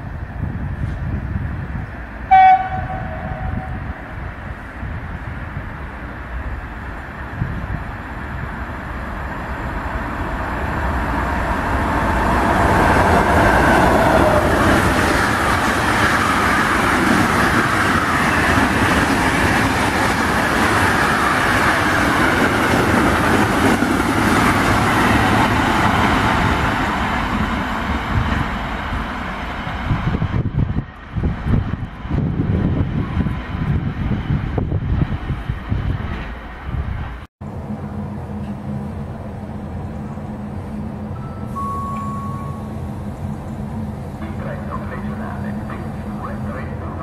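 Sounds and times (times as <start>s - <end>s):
freight train wheels rumbling on rails: 0.0s - 47.0s.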